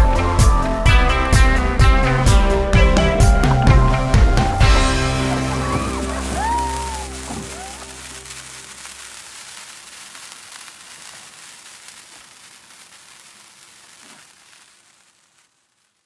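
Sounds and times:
sparkler fizzing and crackling: 0:00.0 - 0:16.0
music chord: 0:00.8 - 0:08.5.

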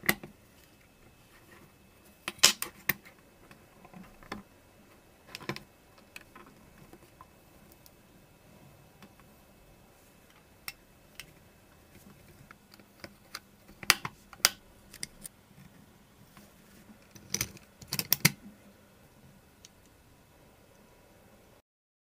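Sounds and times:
plastic and metal parts clicking: 0:17.0 - 0:18.4.

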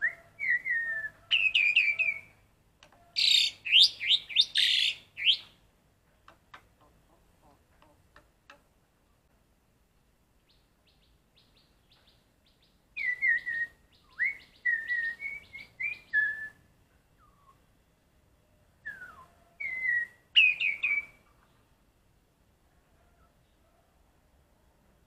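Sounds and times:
starling singing: 0:00.0 - 0:02.4, 0:03.1 - 0:05.6, 0:18.9 - 0:21.2.

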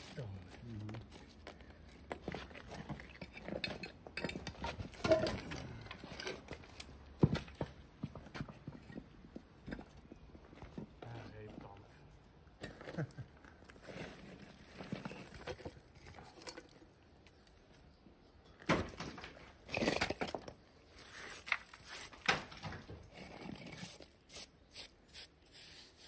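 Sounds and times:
concrete rubble crunching and scraping: 0:00.0 - 0:26.0.

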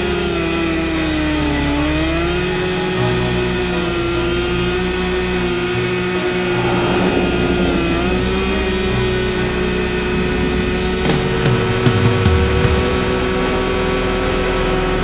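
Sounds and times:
snowmobile engine droning: 0:02.0 - 0:13.4.

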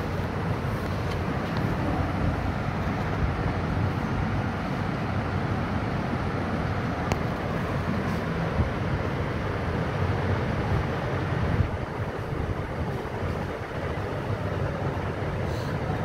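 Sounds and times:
low rumbling background noise: 0:00.0 - 0:16.0.

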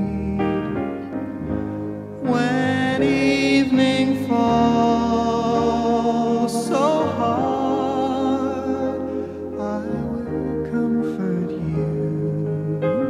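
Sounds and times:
person singing: 0:00.0 - 0:13.0
slow piano ballad: 0:00.0 - 0:13.0.

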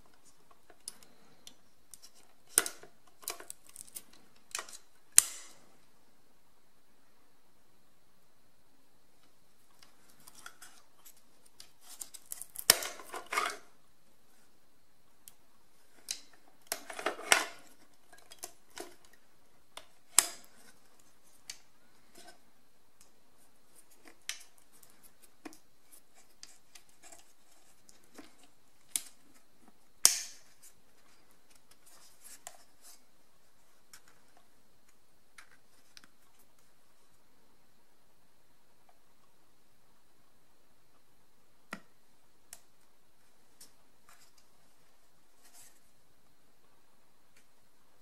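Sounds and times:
hard plastic clicks and snaps: 0:30.0 - 0:30.5.

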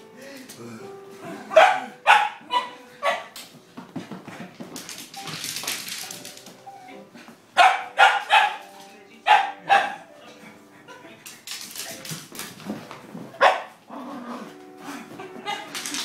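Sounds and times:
puppy barking: 0:01.2 - 0:03.4, 0:07.6 - 0:08.7, 0:09.3 - 0:10.1, 0:13.4 - 0:13.8.

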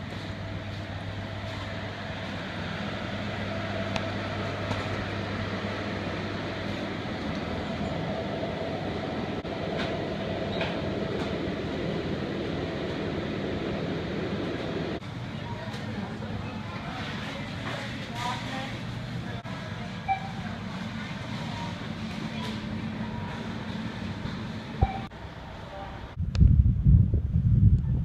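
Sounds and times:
mechanical hum and rumble: 0:00.0 - 0:28.0.

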